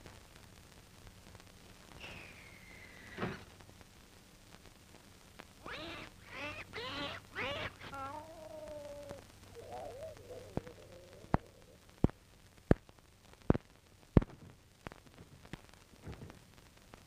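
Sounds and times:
faint hiss: 0.0s - 17.0s
wavering voice-like call: 5.6s - 11.9s.

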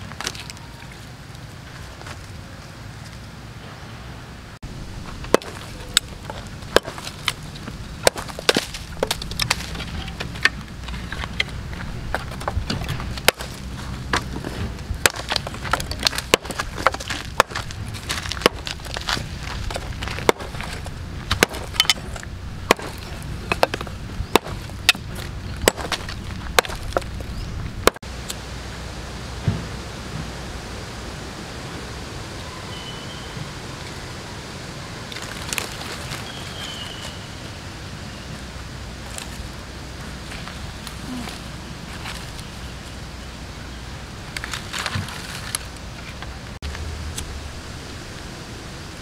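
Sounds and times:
steady low rumble: 0.9s - 36.1s, 37.2s - 49.0s
wooden stick knocking on log: 11.2s - 27.2s.

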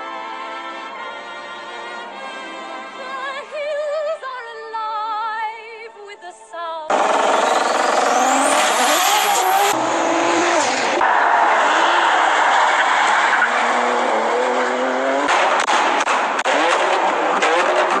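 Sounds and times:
car engine revving high: 6.9s - 18.0s.

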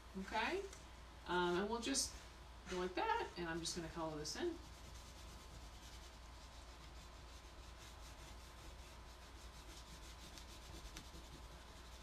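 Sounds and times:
oil pastel rubbing on paper: 4.5s - 12.0s.

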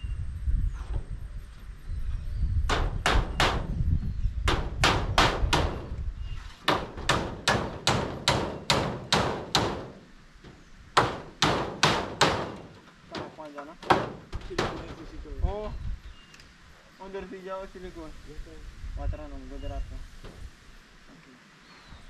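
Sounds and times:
hammer blows on metal roofing: 2.6s - 3.8s, 4.4s - 15.6s.

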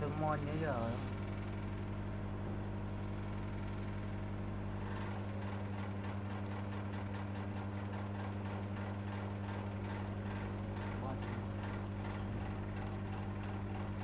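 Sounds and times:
low electrical hum: 0.0s - 14.0s
faint rapid ticking: 4.9s - 14.0s.

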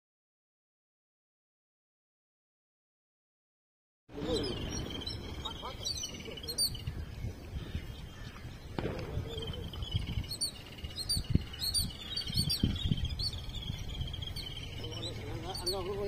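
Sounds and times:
small birds chirping: 4.1s - 16.0s.

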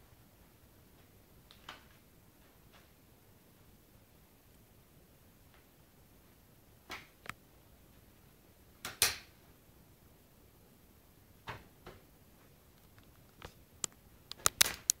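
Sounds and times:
sharp clicks: 12.8s - 15.0s.

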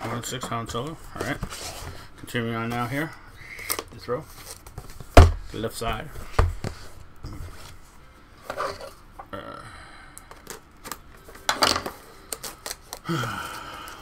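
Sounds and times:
grunt-like vocal sound: 9.3s - 9.8s, 13.1s - 13.6s.

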